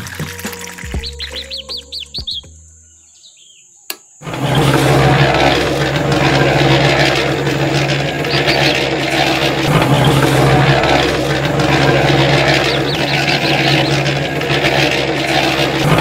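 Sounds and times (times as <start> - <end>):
bird chirps: 0.7 - 4.2, 12.5 - 14.2
click: 3.9 - 4.1
electric motor humming: 4.2 - 16.0.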